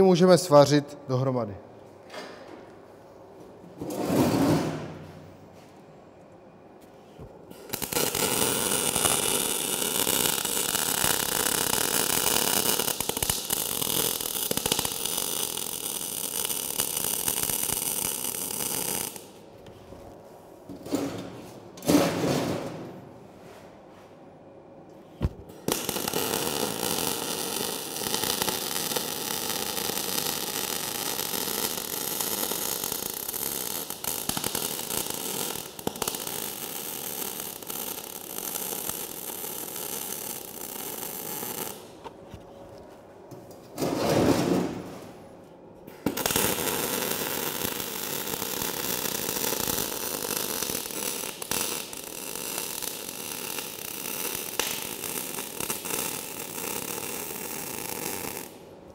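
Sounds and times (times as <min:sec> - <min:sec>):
welding arc crackling: 0:07.5 - 0:19.4, 0:25.5 - 0:42.0, 0:46.1 - 0:58.6.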